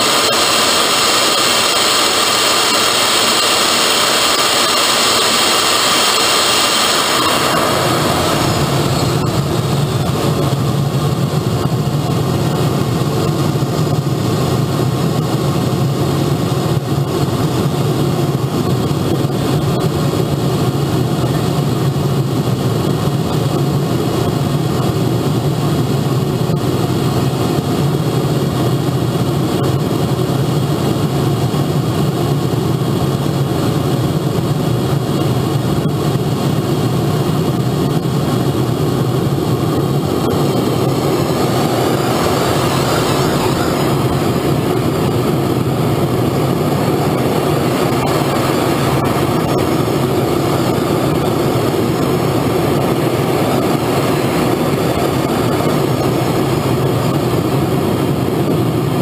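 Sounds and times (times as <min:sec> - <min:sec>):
model jet turbine idling: 0:00.0 - 0:59.0.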